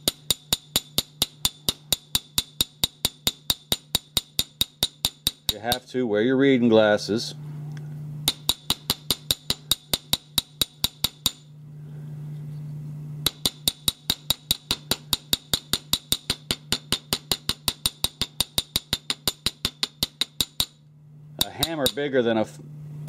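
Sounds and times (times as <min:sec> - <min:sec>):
hammer tapping on steel screw: 0:00.0 - 0:05.9, 0:08.3 - 0:11.5, 0:13.2 - 0:20.8, 0:21.4 - 0:22.1
low steady hum: 0:00.0 - 0:23.0.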